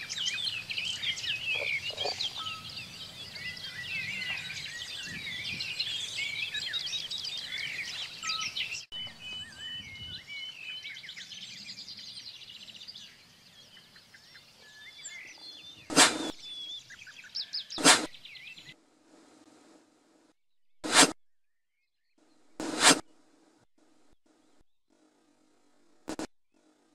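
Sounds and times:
birds singing: 0:00.0 - 0:18.8.

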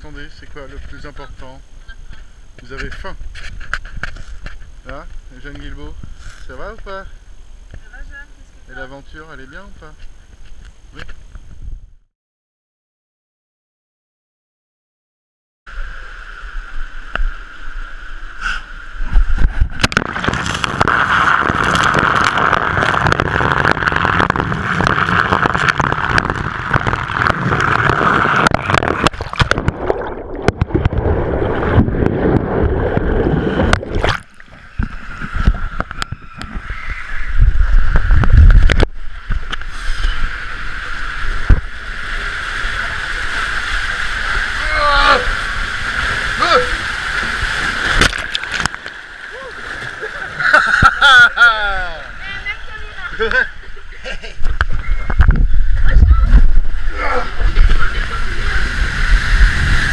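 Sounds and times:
muffled water rushing and splashing: 0:19.0 - 0:51.0, 0:52.1 - 0:59.9.

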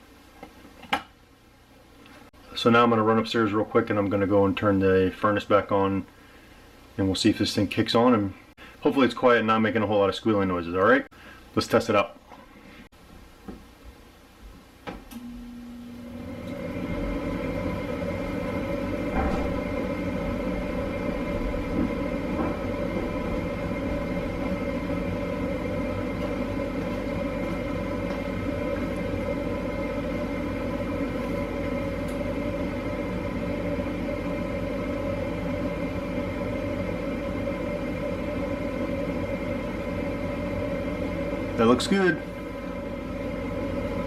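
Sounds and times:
furnace motor humming: 0:14.5 - 0:44.0.

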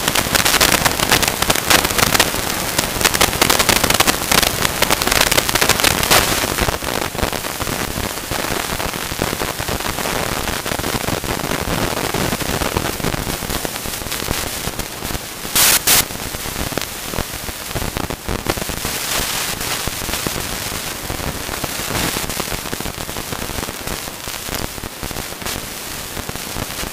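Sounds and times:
steady rushing noise: 0:15.2 - 0:16.3
short loud burst: 0:15.6 - 0:16.0.

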